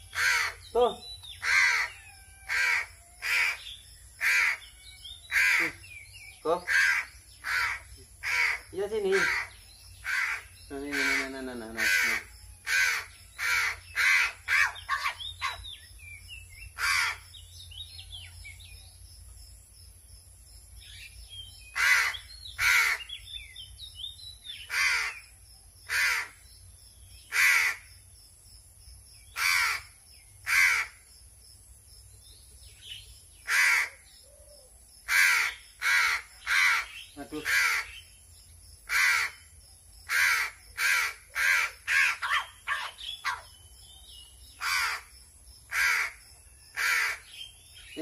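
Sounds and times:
crow cawing: 0:00.0 - 0:00.7, 0:01.4 - 0:05.8, 0:06.6 - 0:15.6, 0:16.8 - 0:17.3, 0:21.8 - 0:23.1, 0:24.7 - 0:25.2, 0:25.9 - 0:26.4, 0:27.3 - 0:27.9, 0:29.4 - 0:31.0, 0:33.4 - 0:34.0, 0:35.1 - 0:38.0, 0:38.9 - 0:39.5, 0:40.1 - 0:43.4, 0:44.6 - 0:45.1, 0:45.7 - 0:46.2, 0:46.8 - 0:47.3.

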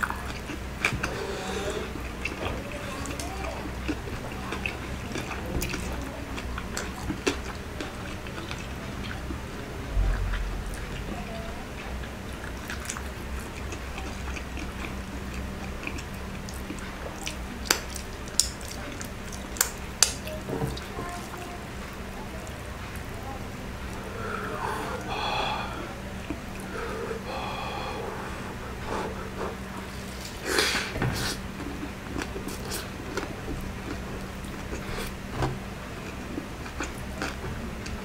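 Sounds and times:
person chewing food: 0:00.0 - 0:21.4, 0:23.8 - 0:38.0
steady low hum: 0:00.0 - 0:38.0
low thump: 0:09.9 - 0:11.5.

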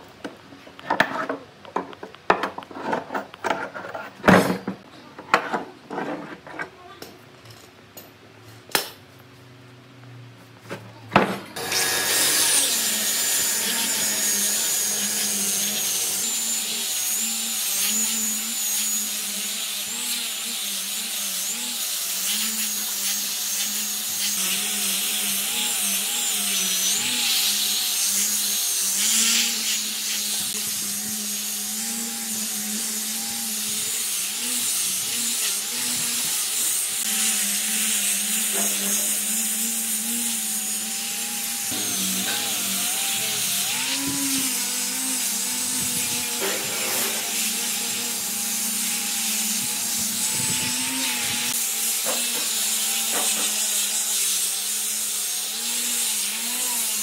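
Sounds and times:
power tool motor on wood: 0:11.6 - 0:57.0.

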